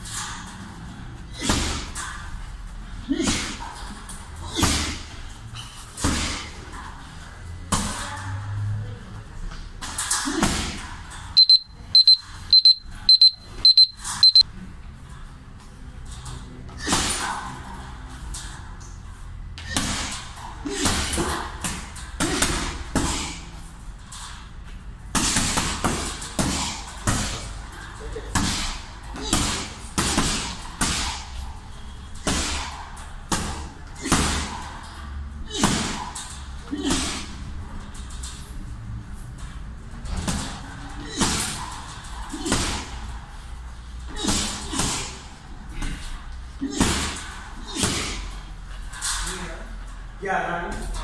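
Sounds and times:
punches hitting heavy bag: 25.1 - 27.4, 28.3 - 31.3, 44.1 - 45.3.

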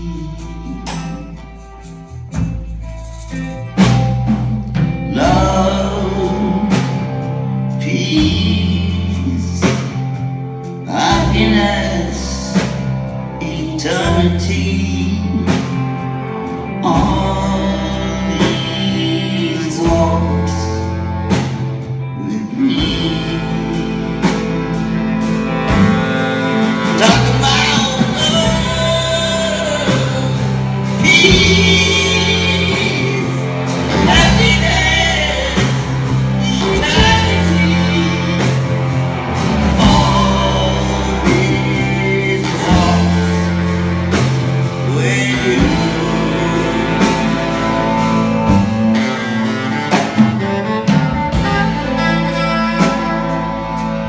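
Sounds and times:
live rock band playing: 0.0 - 54.0.

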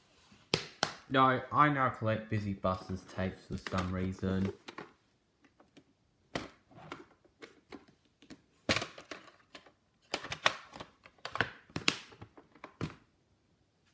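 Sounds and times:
plastic cases clicking and knocking: 3.5 - 13.1.

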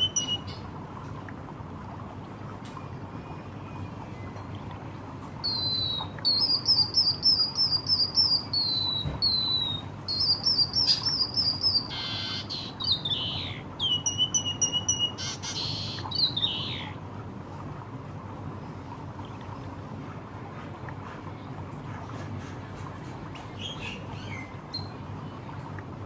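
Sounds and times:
bird singing high chirps: 0.0 - 0.6, 5.4 - 16.9.

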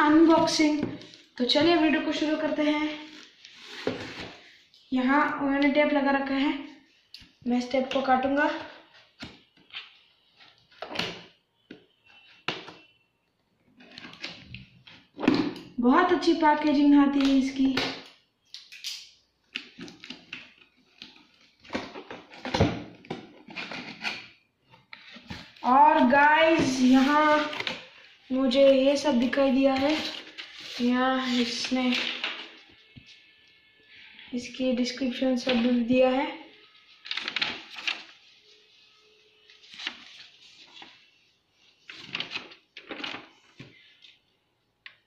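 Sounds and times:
paper rustling: 23.5 - 28.0, 36.9 - 38.6, 39.5 - 44.2
cardboard box handled on tiles: 24.9 - 27.8.

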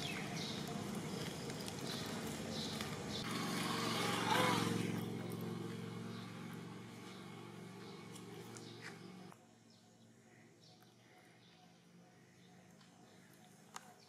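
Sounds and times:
small engine running: 0.0 - 9.4.

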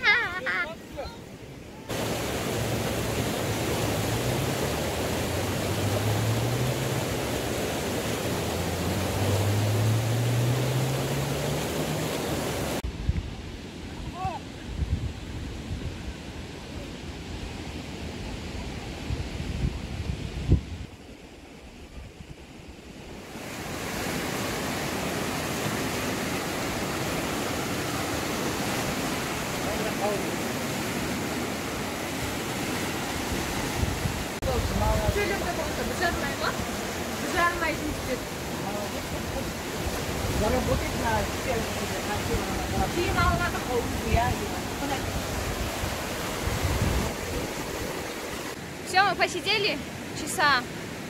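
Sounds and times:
river rushing over rapids: 0.0 - 12.8, 23.0 - 51.0.

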